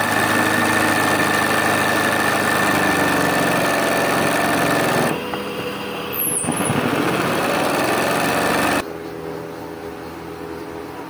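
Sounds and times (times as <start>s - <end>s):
small motor rattling: 0.0s - 8.8s.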